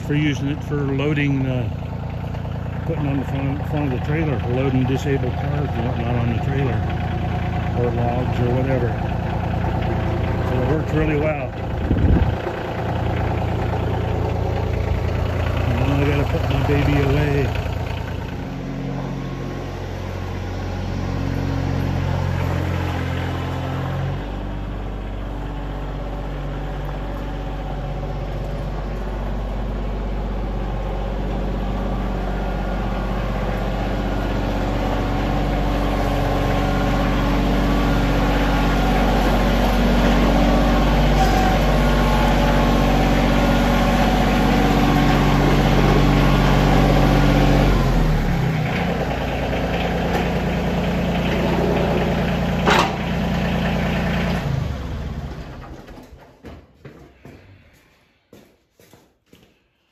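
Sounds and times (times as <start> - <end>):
tractor engine running: 0.0 - 58.3.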